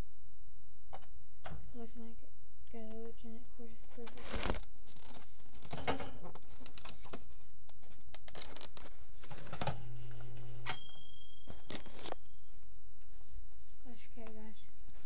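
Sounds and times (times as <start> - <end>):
camera handling clicks and rustles: 11.5 - 12.3.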